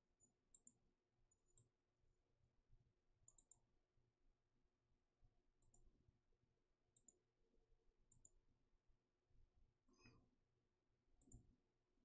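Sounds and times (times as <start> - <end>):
computer mouse clicks: 0.5 - 0.8, 3.2 - 3.7, 5.6 - 5.9, 6.9 - 7.2, 8.1 - 8.4, 11.2 - 11.5.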